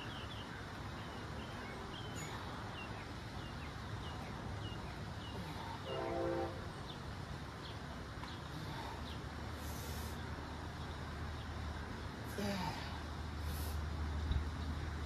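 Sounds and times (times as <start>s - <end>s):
outdoor background rumble: 0.0s - 15.0s
horn blast: 5.8s - 6.7s.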